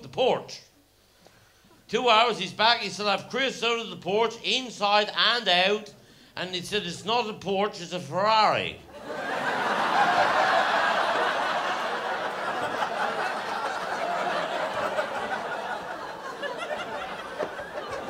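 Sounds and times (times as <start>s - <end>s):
audience laughing: 8.9s - 18.0s.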